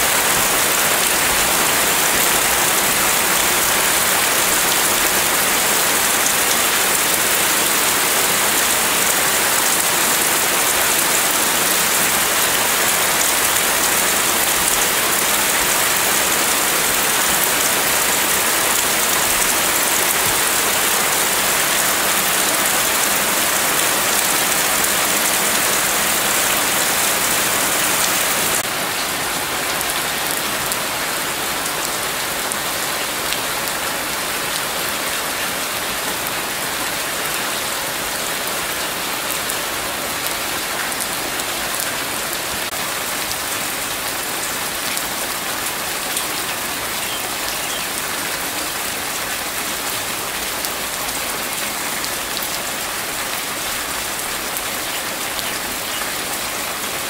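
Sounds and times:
heavy rain: 0:00.0 - 0:57.0.

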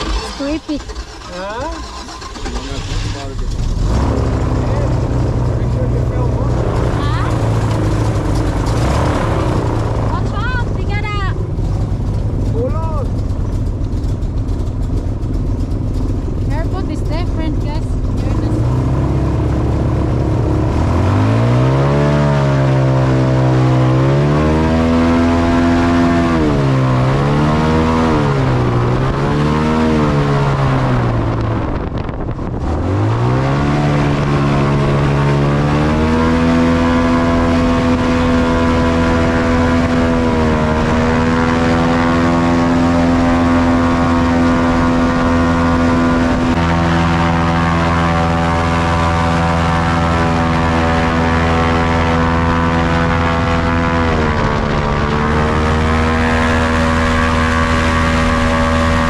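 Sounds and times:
airboat engine and propeller: 0:00.0 - 0:59.0.

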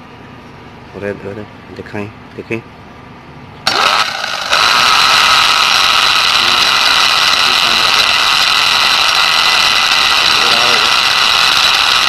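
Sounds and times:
angle grinder whining: 0:03.6 - 0:12.0.

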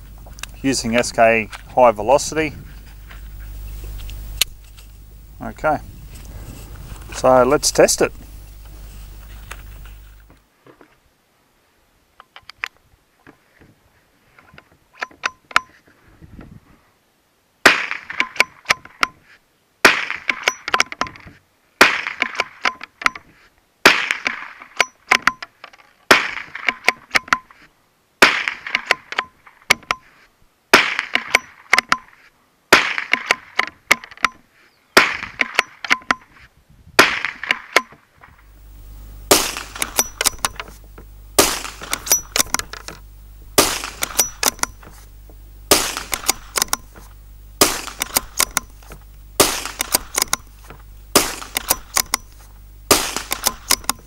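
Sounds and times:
rifle shots: 0:17.6 - 0:18.7, 0:19.8 - 0:20.8, 0:21.8 - 0:22.7, 0:23.8 - 0:24.6, 0:26.1 - 0:27.0, 0:28.2 - 0:29.2, 0:30.7 - 0:31.7, 0:32.7 - 0:33.6, 0:35.0 - 0:35.7, 0:37.0 - 0:37.9, 0:39.2 - 0:40.8, 0:41.4 - 0:45.1, 0:45.7 - 0:54.0
rifle bolt clicks: 0:39.3 - 0:40.8, 0:41.4 - 0:43.0, 0:43.6 - 0:44.9, 0:45.7 - 0:47.0, 0:47.6 - 0:54.0.

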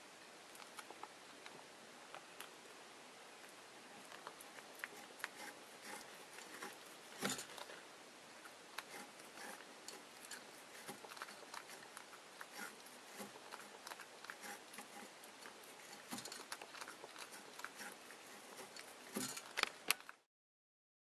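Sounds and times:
cat chewing on cord: 0:04.0 - 0:07.8, 0:08.4 - 0:20.2.

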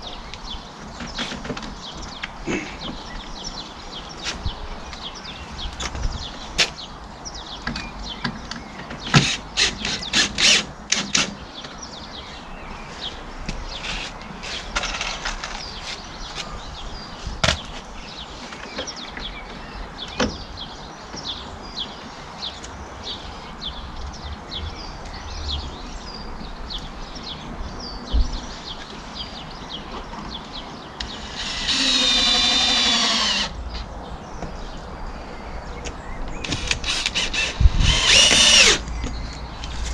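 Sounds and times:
bird chirping: 0:00.0 - 0:39.9
cordless drill whirring into wood: 0:09.1 - 0:11.3, 0:31.1 - 0:33.5, 0:36.4 - 0:38.8.

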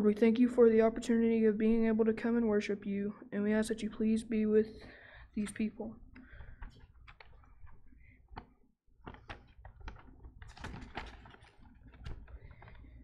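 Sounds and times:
paper crinkling: 0:06.3 - 0:13.0.

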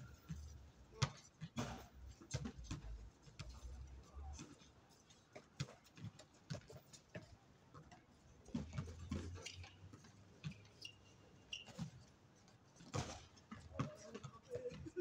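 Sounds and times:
shoe squeak: 0:08.6 - 0:12.1
basketball bouncing: 0:12.8 - 0:14.8.

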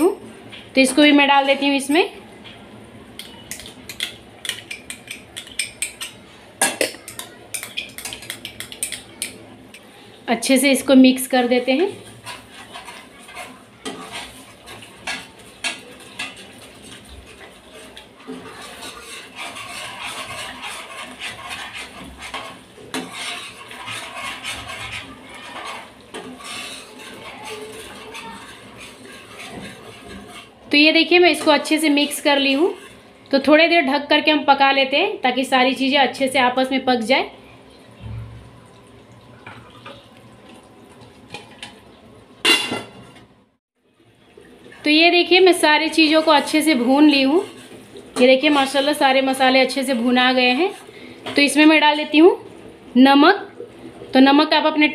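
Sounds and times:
spoon scraping glass bowl: 0:12.0 - 0:30.5.

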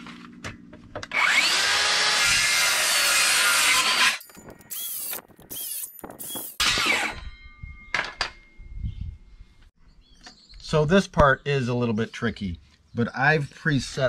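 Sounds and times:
circular saw cutting wood: 0:01.1 - 0:07.3.

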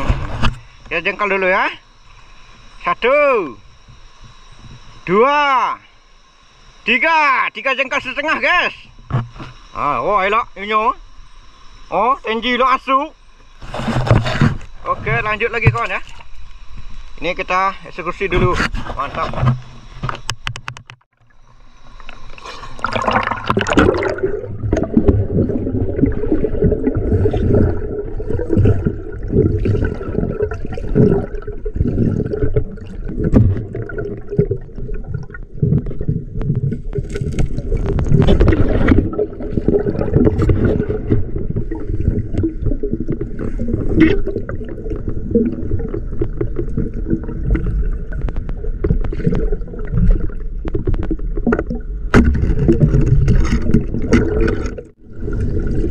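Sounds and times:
water gurgling and sloshing: 0:00.0 - 0:05.1, 0:07.9 - 0:55.9
small knocks and scrapes: 0:09.1 - 0:09.6, 0:13.6 - 0:16.3, 0:18.4 - 0:21.1, 0:50.7 - 0:54.9.

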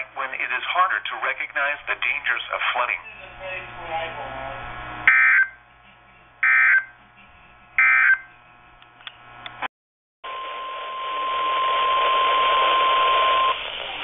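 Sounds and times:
radio static: 0:00.0 - 0:05.5.

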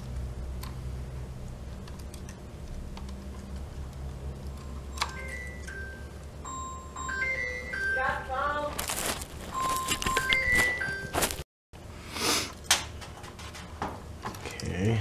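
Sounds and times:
steady low hum: 0:00.0 - 0:15.0
simple melody of clear tones: 0:04.5 - 0:08.6, 0:09.5 - 0:11.4.

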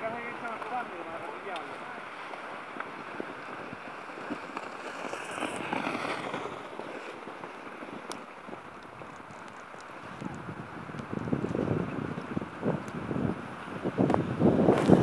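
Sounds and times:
wind rushing: 0:03.5 - 0:07.0.

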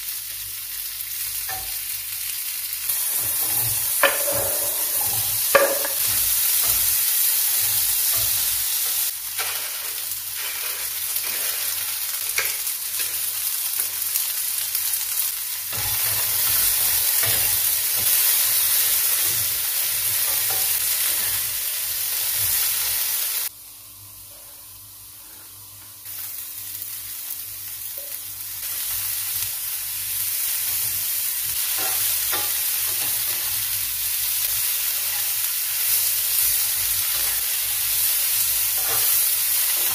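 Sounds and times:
potatoes and sausage sizzling: 0:00.0 - 0:39.9
spatula scraping pan: 0:02.9 - 0:11.8.

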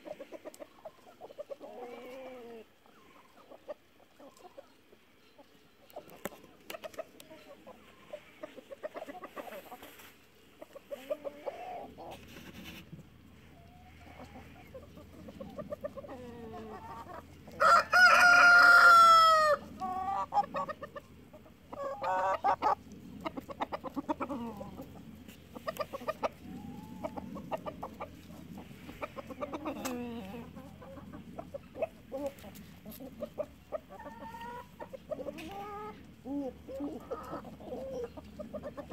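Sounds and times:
chickens clucking: 0:00.0 - 0:38.9
rooster crowing: 0:17.5 - 0:19.6.

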